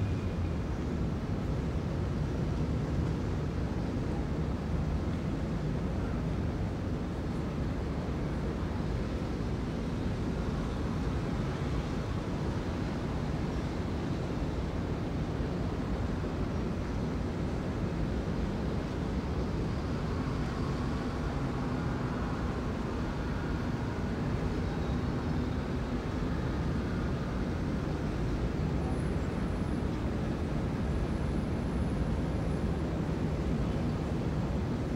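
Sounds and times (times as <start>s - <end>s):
city traffic noise: 0.0s - 34.9s.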